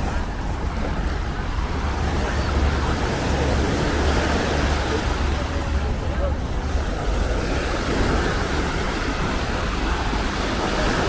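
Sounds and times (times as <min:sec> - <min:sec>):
low wind rumble on microphone: 0:00.0 - 0:11.0
small waves washing onto sand: 0:00.0 - 0:11.0.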